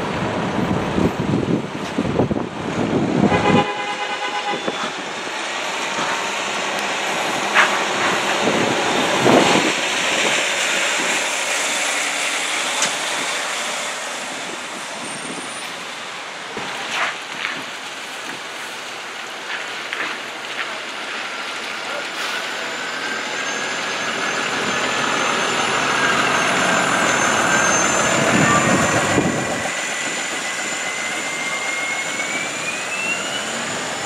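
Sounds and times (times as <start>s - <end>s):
tyres hissing on wet street: 0.0s - 34.0s
brief high whine: 22.2s - 34.0s.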